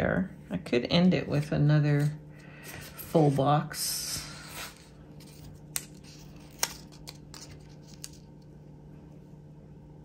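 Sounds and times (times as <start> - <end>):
handling paper and stickers: 4.1 - 8.6.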